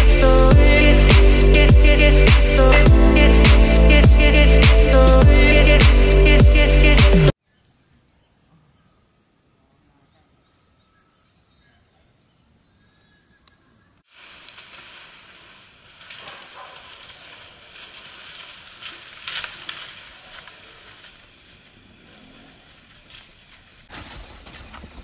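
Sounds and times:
crackles: 14.1s - 25.0s
elephants walking on a road: 14.2s - 25.0s.

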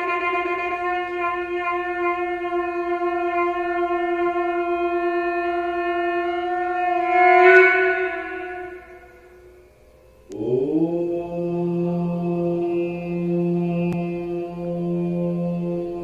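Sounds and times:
conch shell blown: 0.0s - 9.9s, 11.4s - 16.0s.

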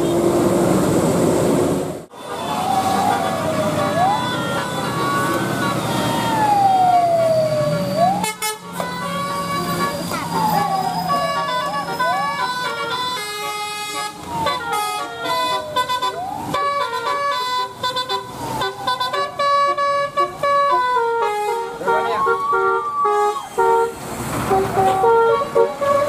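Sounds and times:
bus air horn playing a tune: 3.4s - 6.1s, 8.2s - 26.0s.

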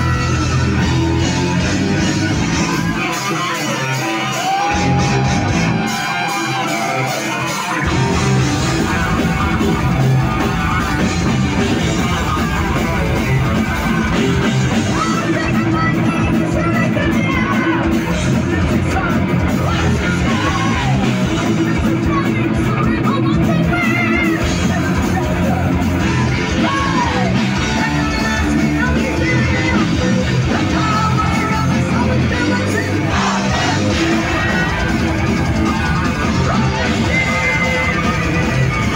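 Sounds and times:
heavy metal band playing live: 0.0s - 38.9s.

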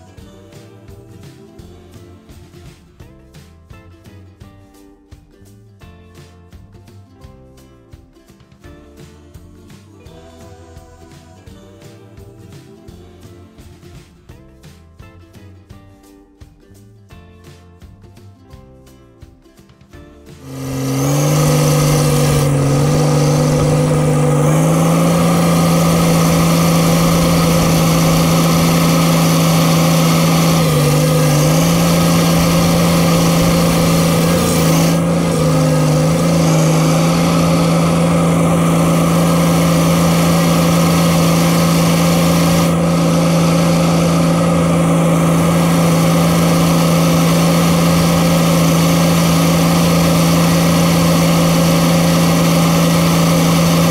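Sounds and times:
bulldozer diesel engine droning: 20.4s - 53.9s.

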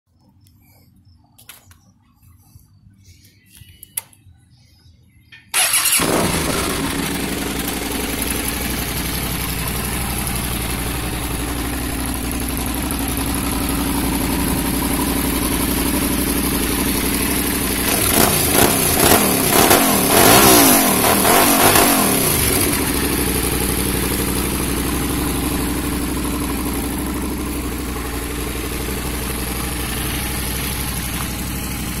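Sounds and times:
motorcycle engine idling: 5.6s - 32.0s
motorcycle throttle blips: 21.0s - 32.0s.

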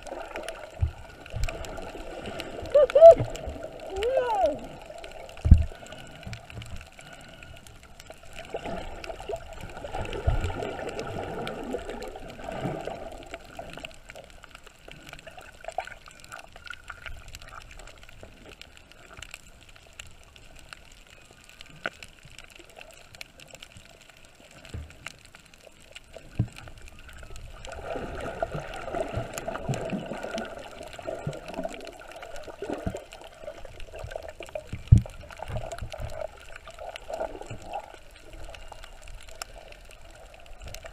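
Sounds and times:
muffled underwater gurgling: 0.0s - 14.2s
faint clicks: 0.0s - 40.9s.

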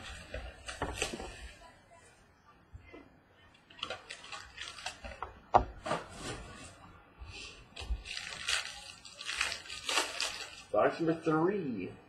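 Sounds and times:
wrapper tearing: 3.8s - 5.2s, 7.8s - 10.8s
cardboard scraping and rustling: 5.7s - 6.8s.

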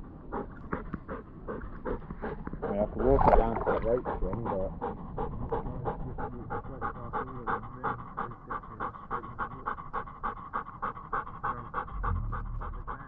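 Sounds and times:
dog panting: 0.0s - 13.0s
low rumble: 11.8s - 13.0s.

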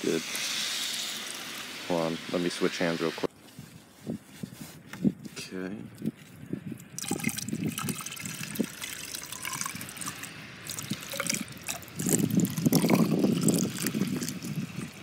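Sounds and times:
liquid pouring from a jug: 6.8s - 15.0s.

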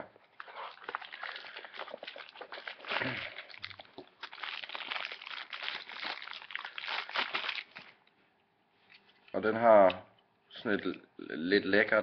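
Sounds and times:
packaging crinkling and rustling: 0.3s - 8.0s.

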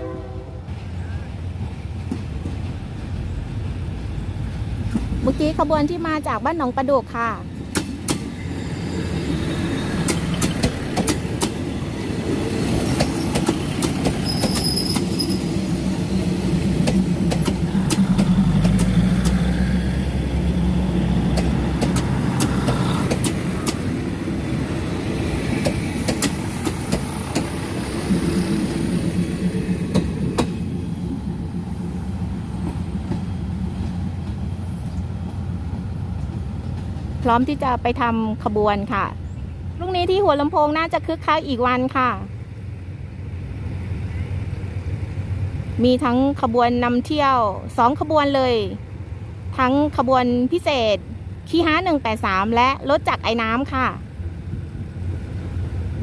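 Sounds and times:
train wheels clicking on rail joints: 7.6s - 31.2s
diesel engines humming: 8.4s - 36.6s.

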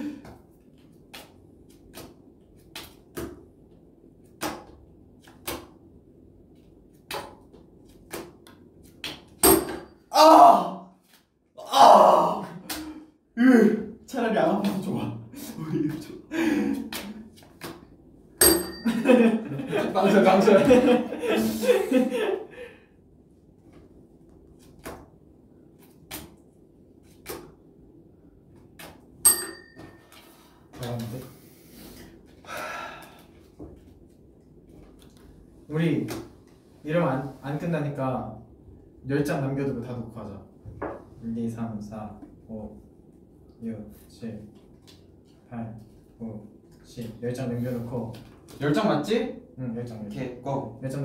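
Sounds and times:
playing cards slapped on table: 1.0s - 3.5s, 4.3s - 5.8s, 7.0s - 9.4s, 16.9s - 17.9s, 24.6s - 25.2s, 26.0s - 26.4s, 27.1s - 27.6s.

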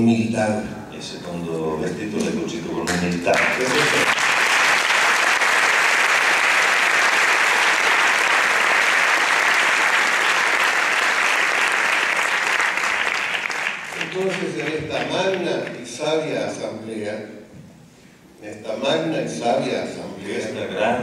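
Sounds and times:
large audience applauding: 2.9s - 15.8s.

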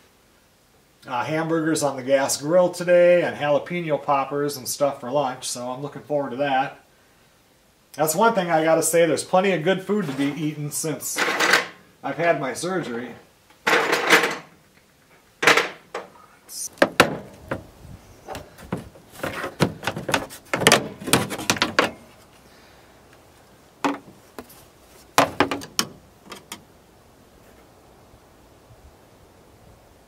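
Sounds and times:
metal tools clattering: 13.7s - 14.5s.

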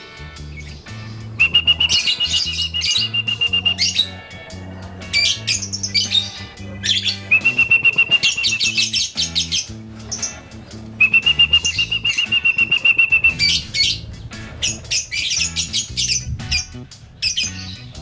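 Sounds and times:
lovebirds chirping: 0.3s - 18.0s
pulsed bird trill: 0.4s - 4.4s, 5.1s - 10.4s, 11.0s - 17.9s.

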